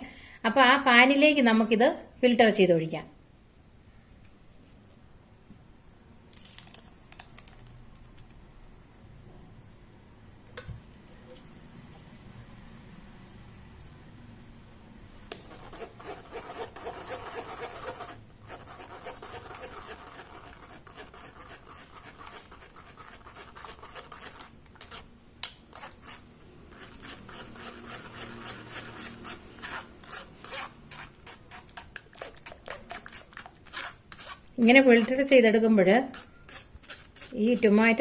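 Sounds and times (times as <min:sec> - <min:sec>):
spoon rasping on wire mesh: 0:25.7 - 0:38.0.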